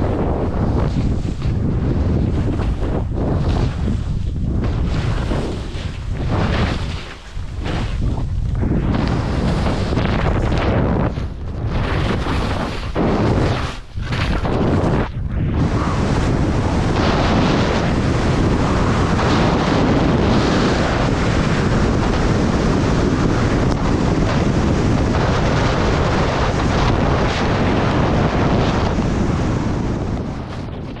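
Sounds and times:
wind rushing over microphone: 0.0s - 31.0s
skis hissing through snow: 4.8s - 8.0s.

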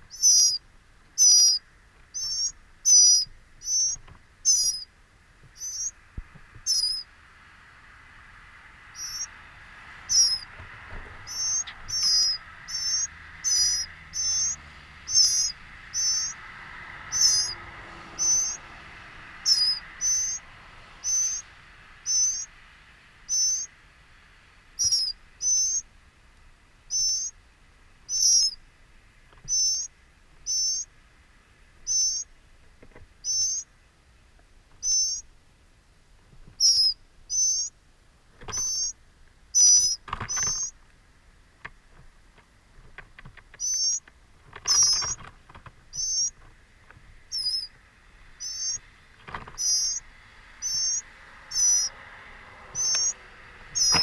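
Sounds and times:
faint insect-like drone: 0.0s - 0.6s, 1.2s - 4.9s, 5.5s - 32.6s, 34.8s - 35.3s, 43.6s - 54.0s
songbird high wavering call: 0.0s - 4.9s, 5.5s - 6.0s, 6.6s - 7.1s, 8.9s - 9.4s, 10.0s - 10.5s, 11.2s - 16.5s, 17.1s - 18.7s, 19.4s - 22.6s, 23.2s - 23.8s, 24.7s - 25.9s, 26.9s - 27.4s, 28.0s - 28.6s, 29.4s - 30.9s, 31.8s - 32.4s, 33.2s - 33.7s, 34.8s - 35.3s, 36.6s - 37.8s, 38.6s - 40.8s, 43.6s - 44.0s, 44.7s - 45.2s, 45.9s - 46.4s, 47.3s - 48.9s, 49.6s - 54.0s.

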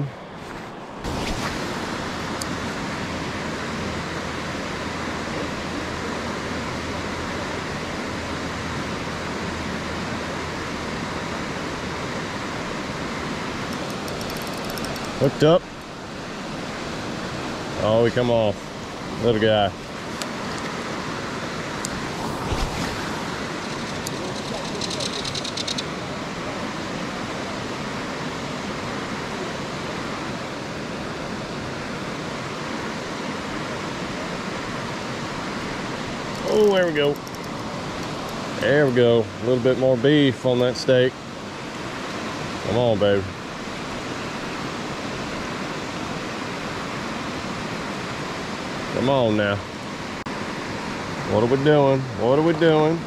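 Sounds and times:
river water rushing: 0.0s - 53.0s
fast ticks: 23.7s - 25.9s, 37.1s - 37.6s.

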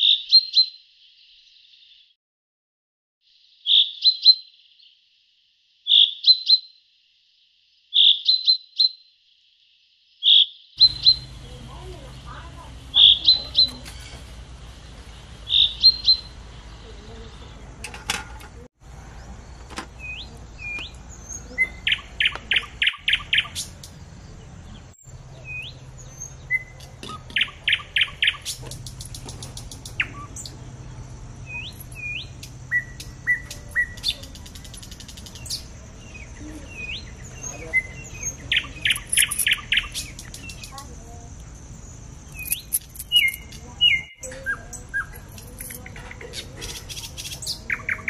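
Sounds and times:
birds chirping: 10.2s - 48.0s.

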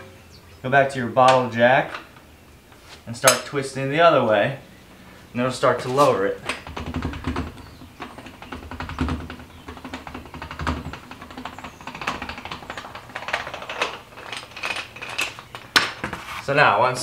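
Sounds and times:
jack handle clicking and rattling: 6.4s - 16.0s.

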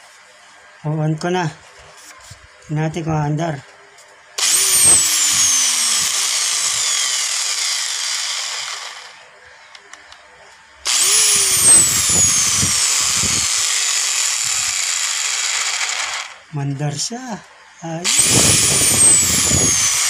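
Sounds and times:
angle grinder whining: 4.4s - 9.3s, 10.8s - 16.5s, 18.0s - 20.0s.

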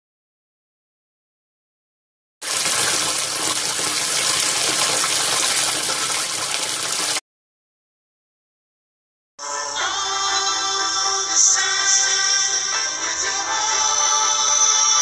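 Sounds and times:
bathtub tap running: 2.4s - 7.2s.

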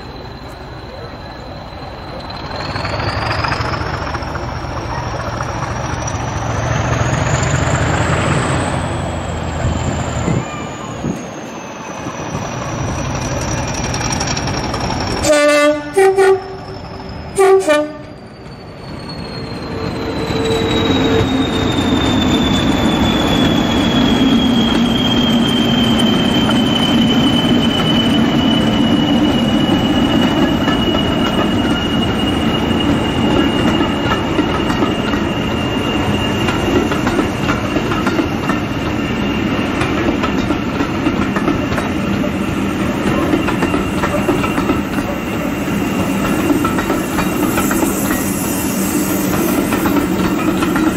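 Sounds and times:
high turbocharger whistle: 15.0s - 39.9s
locomotive two-tone horn: 15.2s - 18.2s.

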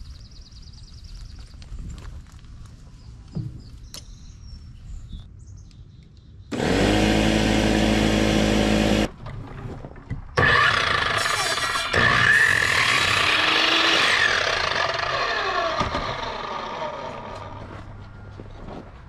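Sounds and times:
electric miter saw cutting wood: 6.5s - 9.1s, 10.4s - 17.6s.

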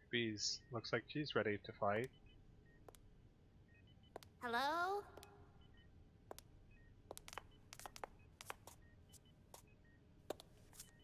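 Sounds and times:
short electronic beeps: 1.8s - 3.0s, 5.2s - 6.0s, 6.6s - 10.0s, 10.7s - 11.0s.

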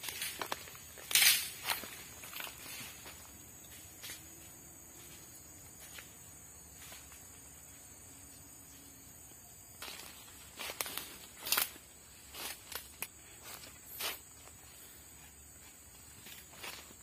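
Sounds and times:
footsteps crunching on dry leaves: 0.0s - 4.2s, 9.8s - 17.0s
high insect drone: 0.0s - 17.0s.

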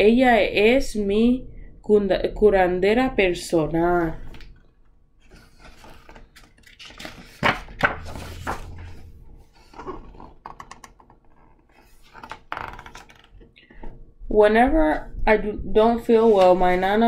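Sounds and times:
book pages turning: 4.2s - 13.8s, 16.1s - 16.8s
paper rustling: 4.3s - 13.4s.

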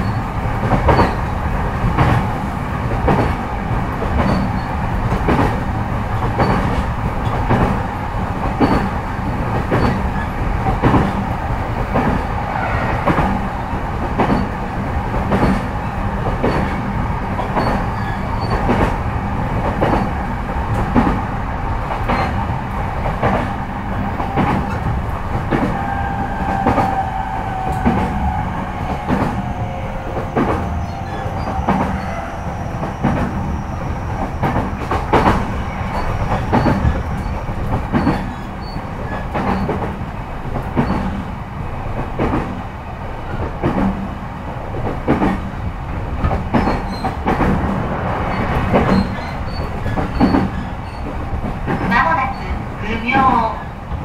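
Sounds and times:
clickety-clack of rail joints: 0.0s - 54.0s
train wheels rumbling on rail: 0.0s - 54.0s.

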